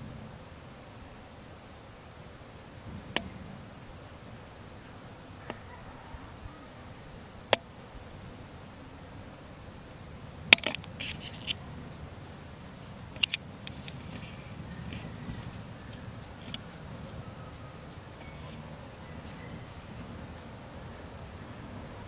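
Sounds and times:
sharp clicks: 0:13.1 - 0:14.3
faint bird chirps: 0:13.9 - 0:21.3.

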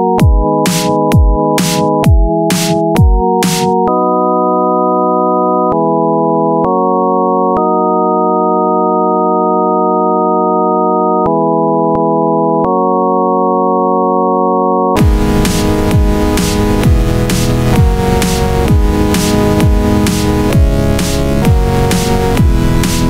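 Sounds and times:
organ-like synthesizer chords: 0:00.0 - 0:23.0
dubstep beat: 0:00.2 - 0:03.8, 0:15.0 - 0:23.0.

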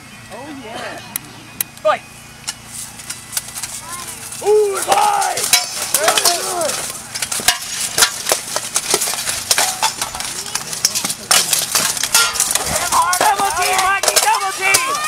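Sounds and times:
people shouting: 0:03.8 - 0:07.0, 0:12.1 - 0:15.0
swords clanking on armour: 0:04.8 - 0:15.0.

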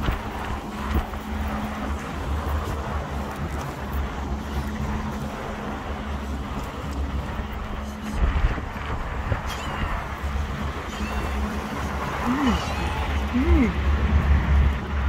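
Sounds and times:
low engine drone: 0:00.0 - 0:15.0.

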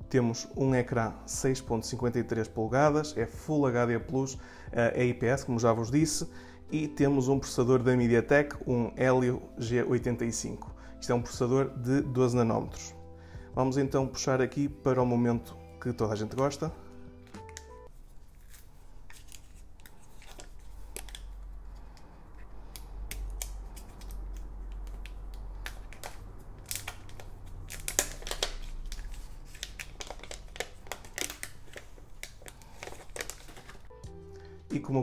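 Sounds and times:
plastic film peeling and crinkling: 0:17.2 - 0:34.1.

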